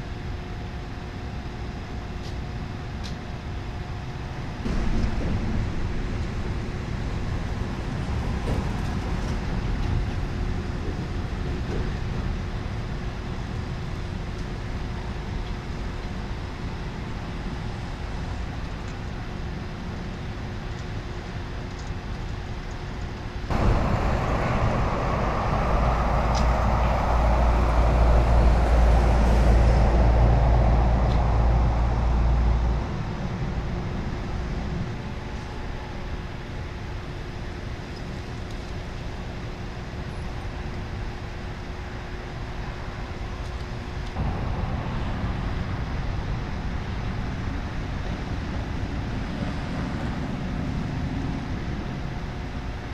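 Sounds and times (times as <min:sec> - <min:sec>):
deep rumble with hiss: 0:00.0 - 0:52.9
vehicle engines and road traffic: 0:00.0 - 0:52.9.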